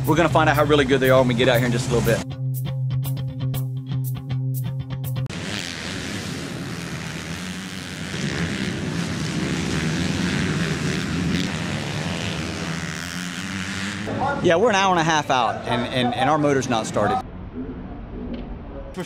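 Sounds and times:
dirt bike engines revving: 0.0s - 2.2s, 5.3s - 17.2s.

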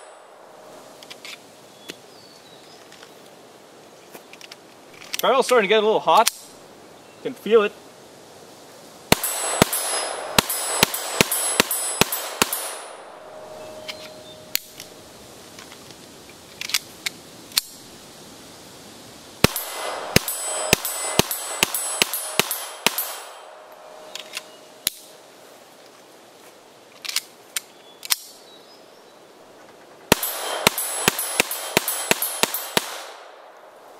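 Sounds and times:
pistol shots: 9.1s - 13.9s, 19.4s - 25.0s, 30.1s - 33.6s.

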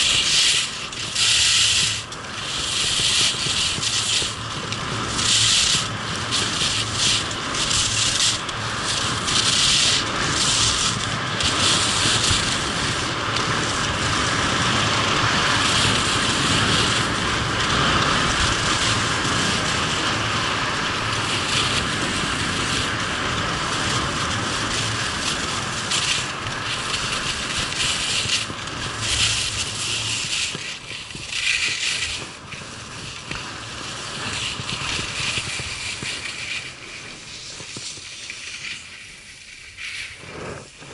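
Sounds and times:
skis scraping on snow: 0.0s - 40.9s
wind on microphone: 0.0s - 40.9s.

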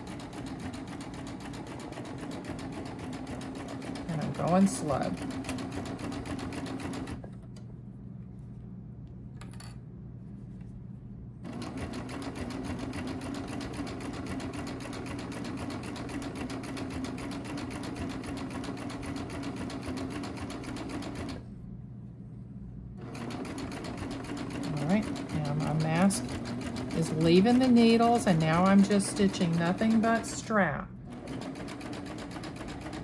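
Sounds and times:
serger sewing machine running: 0.0s - 7.2s, 11.4s - 21.4s, 23.0s - 33.0s.

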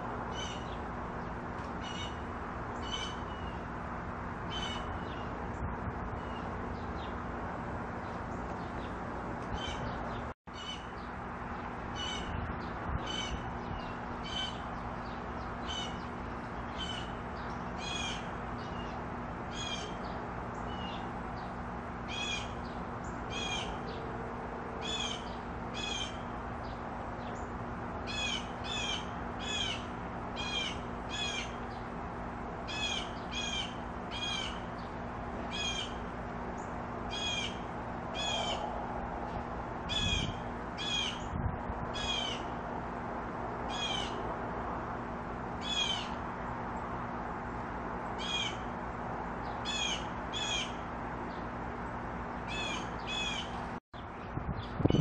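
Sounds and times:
steady low hum: 0.0s - 55.0s
bird calling: 22.1s - 24.0s, 24.8s - 26.3s, 32.7s - 36.0s, 36.6s - 38.7s, 45.6s - 46.2s, 49.6s - 50.8s, 52.5s - 53.7s.

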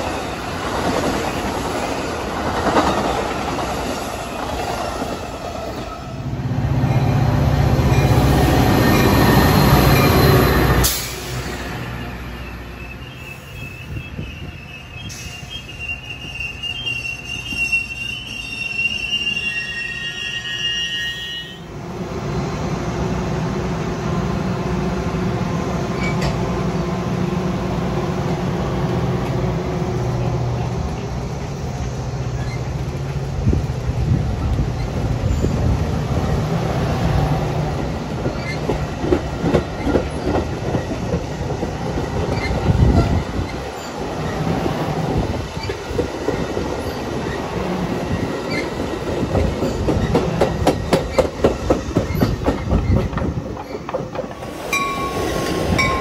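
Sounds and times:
train wheels rumbling on rail: 0.0s - 56.0s
high metallic wheel squeal: 12.0s - 21.6s, 48.4s - 48.8s
wheels clicking over rail joints: 45.4s - 56.0s.

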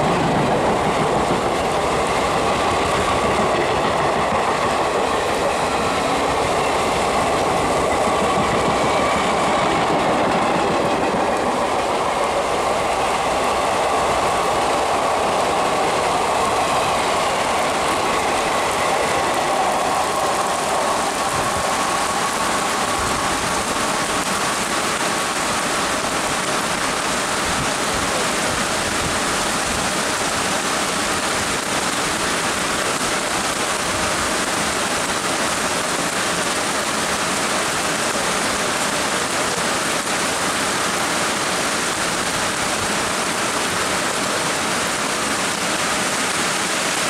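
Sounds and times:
heavy rain pouring: 0.0s - 47.0s
passing train rumble: 0.0s - 47.0s.

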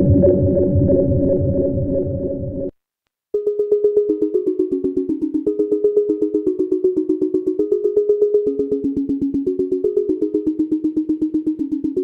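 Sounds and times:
synthesizer arpeggio: 3.4s - 12.0s.

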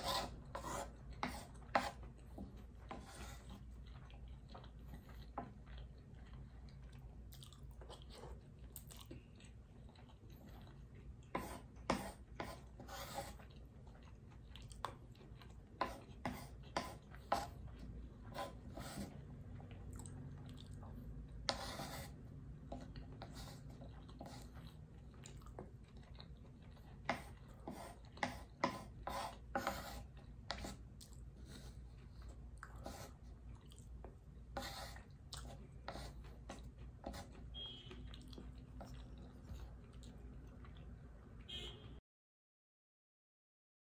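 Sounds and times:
crunchy chewing: 3.4s - 11.8s, 23.6s - 28.2s, 35.0s - 40.9s.

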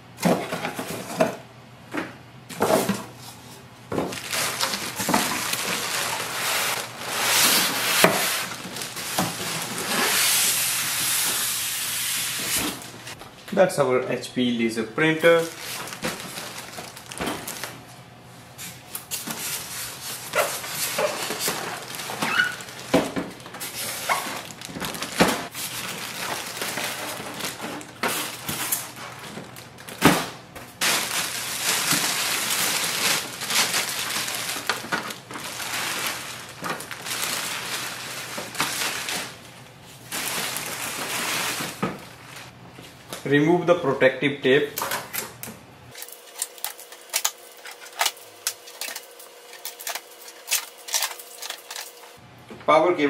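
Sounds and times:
plastic bag crinkling: 3.9s - 11.0s, 15.2s - 17.9s, 18.6s - 30.1s, 30.8s - 42.6s, 45.9s - 52.2s
foam squeaking and scraping: 5.8s - 12.6s, 19.4s - 23.0s, 23.6s - 24.6s.

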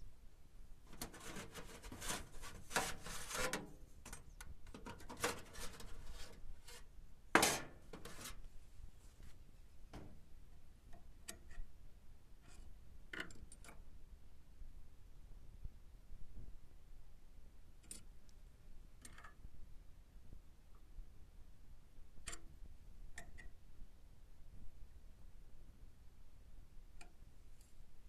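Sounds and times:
rubbing and scraping handling noises: 0.9s - 9.5s.

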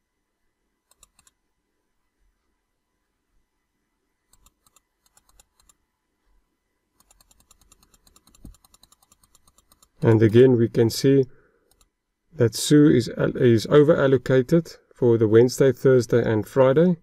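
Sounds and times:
computer mouse clicks: 0.8s - 1.4s, 4.3s - 5.8s, 7.0s - 10.2s, 11.6s - 11.9s.

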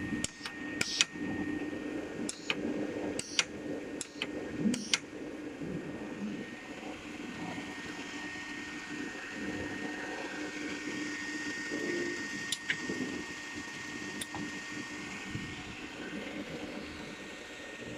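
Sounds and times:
machine hum with high whine: 0.0s - 17.9s
sharp clicks: 0.2s - 1.1s, 2.3s - 2.6s, 3.2s - 5.0s, 12.5s - 12.8s.

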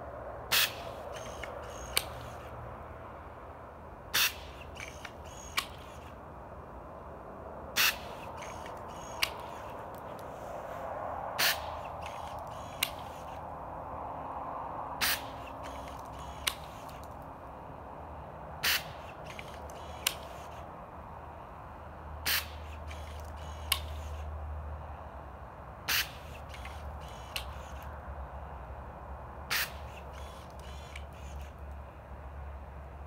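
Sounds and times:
sharp click: 0.5s - 2.5s, 4.2s - 6.2s, 7.8s - 10.3s, 11.4s - 13.4s, 15.0s - 17.3s, 18.6s - 20.6s, 22.3s - 24.2s, 25.9s - 27.9s.

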